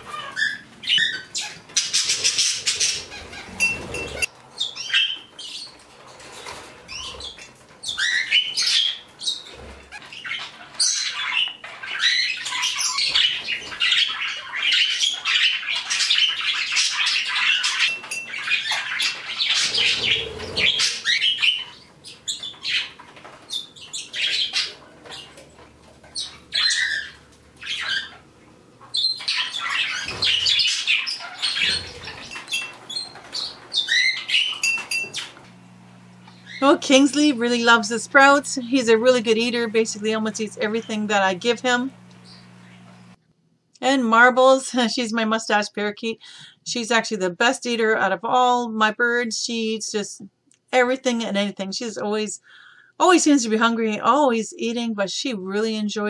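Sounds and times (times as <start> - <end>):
parakeets chirping and chattering: 0.0 - 43.2.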